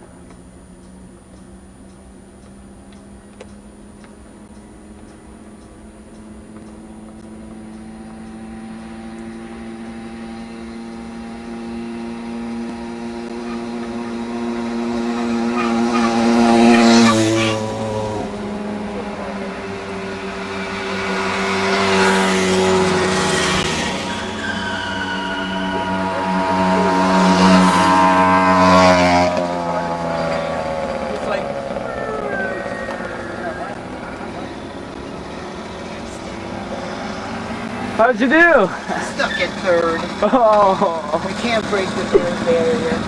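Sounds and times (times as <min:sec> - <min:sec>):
moped engines buzzing past: 0:00.0 - 0:43.0.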